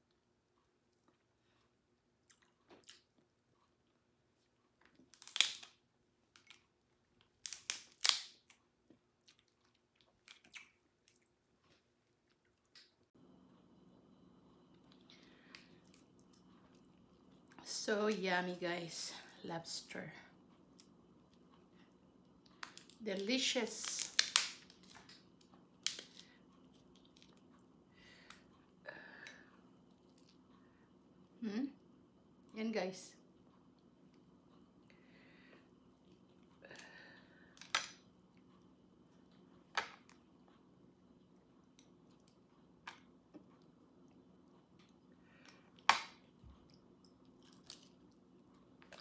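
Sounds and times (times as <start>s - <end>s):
chewing: 0.9s - 5.1s, 8.5s - 13.1s
lobster shell cracking: 5.1s - 6.6s, 7.3s - 8.6s, 23.8s - 25.2s.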